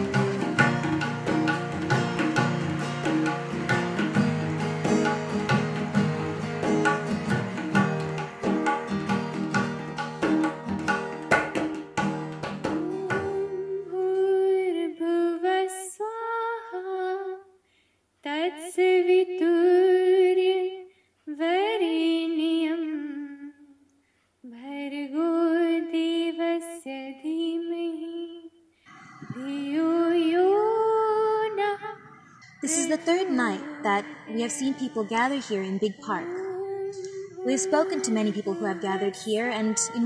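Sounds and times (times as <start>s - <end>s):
hand drum: 0.0s - 13.6s, 37.2s - 39.0s
plucked string instrument: 0.0s - 13.8s, 31.6s - 40.0s
person singing gliding phrases: 28.9s - 40.0s.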